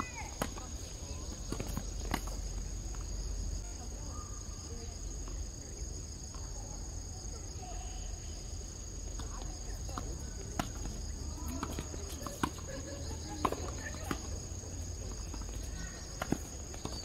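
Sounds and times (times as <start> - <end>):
insects droning: 0.0 - 17.0
tennis ball strikes: 10.0 - 11.0, 13.4 - 14.4, 16.1 - 17.0.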